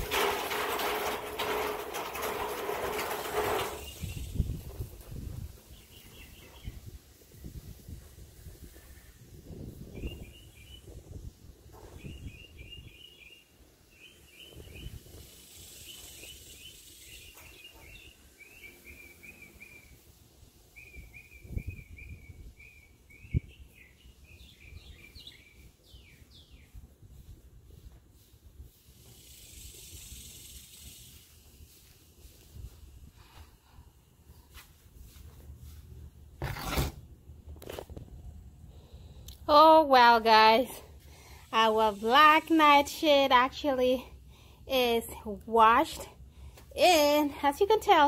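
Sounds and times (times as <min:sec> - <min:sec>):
low wind noise: 0:00.0 - 0:43.0
songbird chirping: 0:05.6 - 0:07.0, 0:09.9 - 0:26.9.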